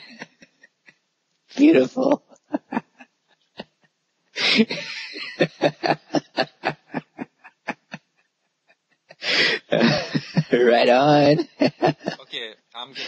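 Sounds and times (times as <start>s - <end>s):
man laughing: 2.0s - 3.8s, 4.4s - 13.0s.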